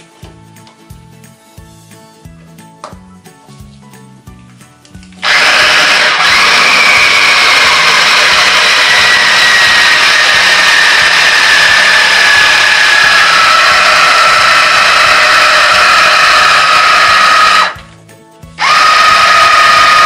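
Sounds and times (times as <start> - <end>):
food chopper motor whining: 5.2 - 17.8, 18.6 - 20.0.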